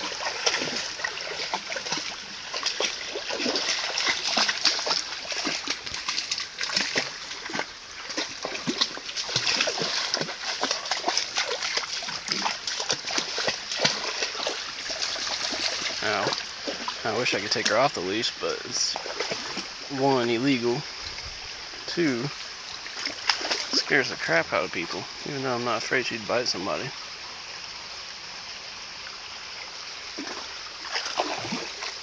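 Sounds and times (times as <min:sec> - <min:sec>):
dog splashing through creek water: 0:00.0 - 0:27.0, 0:29.9 - 0:32.0.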